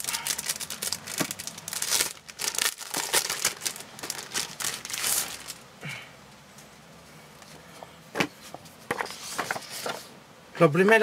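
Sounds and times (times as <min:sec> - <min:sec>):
plastic wrap and paper crinkling: 0:00.0 - 0:05.6.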